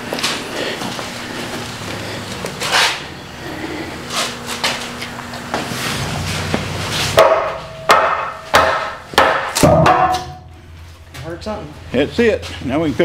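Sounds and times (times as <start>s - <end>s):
hammer striking metal: 7.2s - 10.5s.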